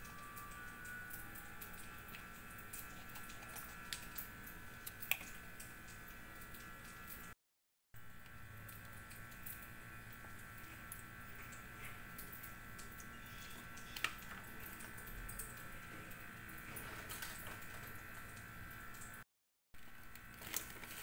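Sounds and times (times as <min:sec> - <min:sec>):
high electrical whine: 0:00.0 - 0:07.4.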